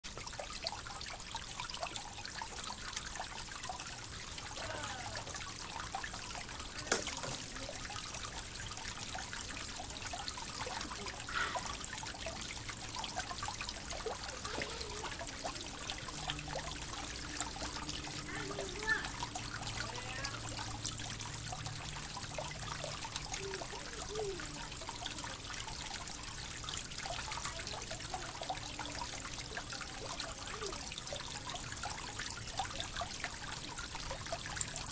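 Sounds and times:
creek flowing over rocks: 0.0s - 34.9s.

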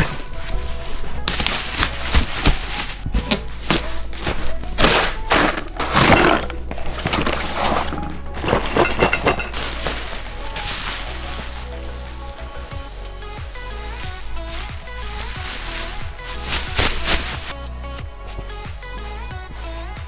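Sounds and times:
cardboard box flaps rubbing: 0.0s - 8.2s, 13.8s - 17.6s
background music: 0.0s - 20.0s
bubble wrap crinkling: 0.0s - 20.0s.

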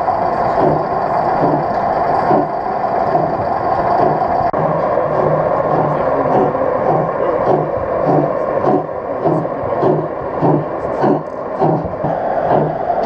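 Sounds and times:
hum of exhibition hall: 0.0s - 13.0s
model steam locomotive chuffing: 0.0s - 13.0s.

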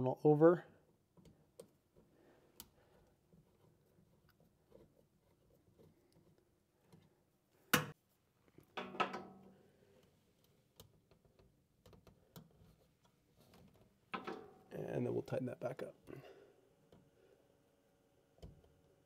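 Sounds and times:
wire clicking in screw terminal: 10.4s - 13.8s.

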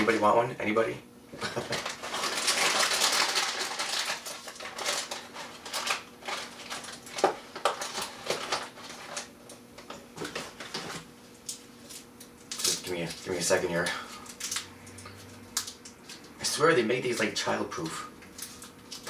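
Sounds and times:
crinkling and crackling packaging: 1.5s - 9.3s, 10.2s - 16.3s, 18.3s - 19.0s.

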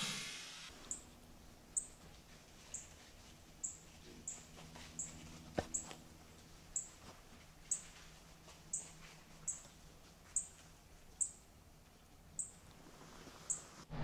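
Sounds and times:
small animal chirping: 1.8s - 2.0s, 2.7s - 2.9s, 3.6s - 6.0s, 6.8s - 7.0s, 8.7s - 9.7s, 11.2s - 11.4s, 12.4s - 12.6s.

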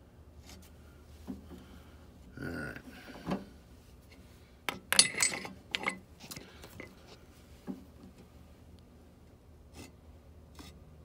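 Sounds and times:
metal clinks and rattles: 4.7s - 6.0s.

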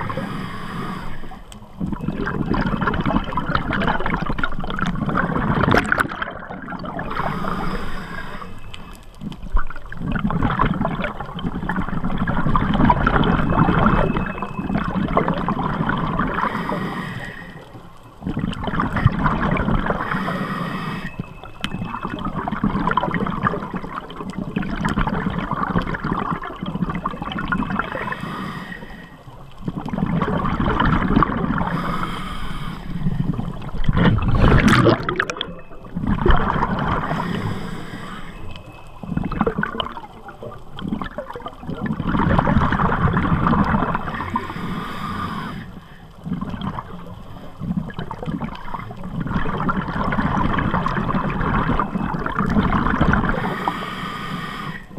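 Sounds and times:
underwater regulator bubbling exhalations: 0.0s - 8.6s, 9.2s - 17.1s, 18.2s - 21.0s, 29.6s - 38.2s, 39.0s - 54.9s.

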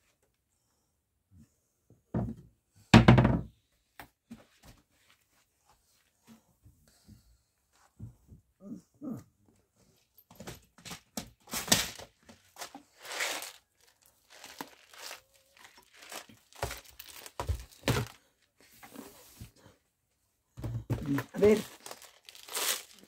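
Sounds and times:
plastic crinkling and rustling: 10.5s - 18.5s, 20.9s - 23.0s.

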